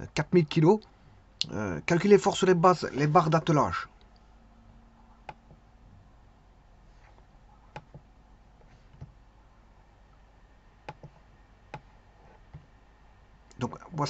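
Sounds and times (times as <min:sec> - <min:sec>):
faint steady hum: 0:00.0 - 0:14.0
computer mouse clicks: 0:07.7 - 0:08.1, 0:10.8 - 0:11.9.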